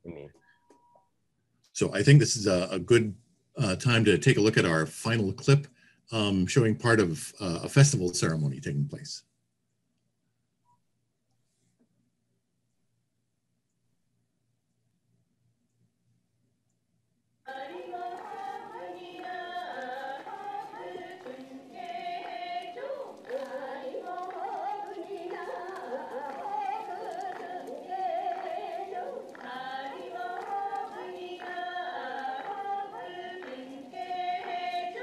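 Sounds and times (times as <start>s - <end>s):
voices singing long notes: 17.5s - 35.0s.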